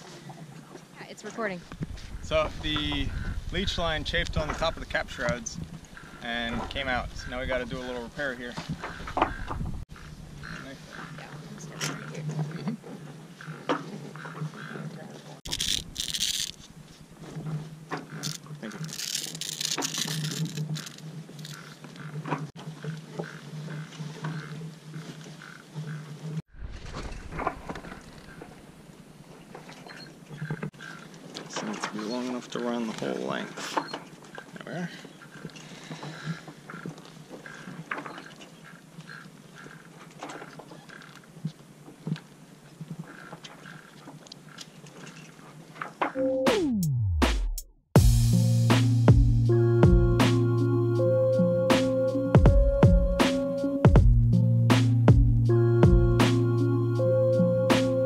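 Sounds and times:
sailcloth crinkling: 18.1 - 21.6.

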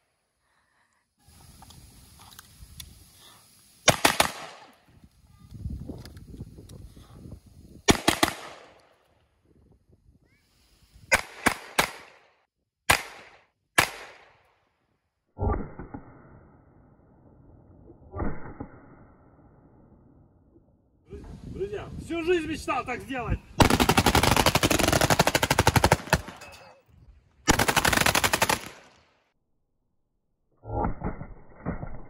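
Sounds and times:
pistol shots: 3.8 - 4.7, 7.9 - 8.8, 11.1 - 12.2, 12.9 - 14.3.

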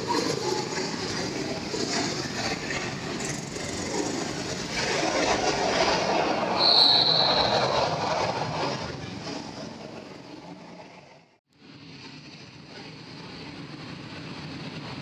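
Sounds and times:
go-kart engines passing: 0.0 - 10.8.

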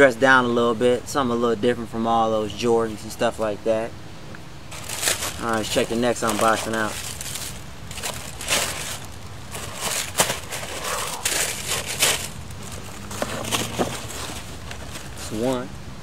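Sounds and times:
packing paper rustling: 4.7 - 15.5.

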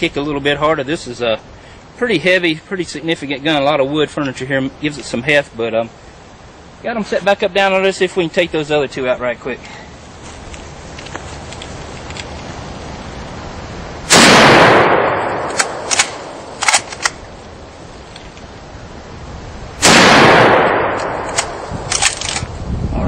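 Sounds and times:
rifle shots echoing: 14.1 - 17.3, 19.8 - 22.4
rifle bolt clicking: 15.4 - 17.2, 20.9 - 22.5.

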